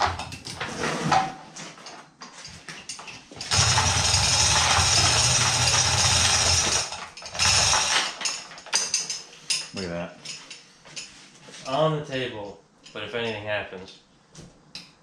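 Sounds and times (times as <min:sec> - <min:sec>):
metal parts knocking and clinking: 0:01.8 - 0:11.1
small motor-driven tool running: 0:03.5 - 0:08.0.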